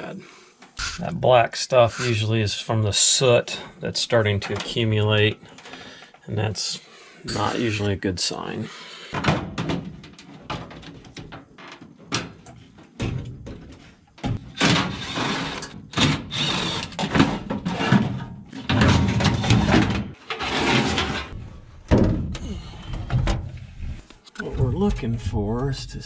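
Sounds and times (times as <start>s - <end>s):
metal scraping: 14.6s - 21.8s
sheet metal knocks and clanks: 21.3s - 23.5s.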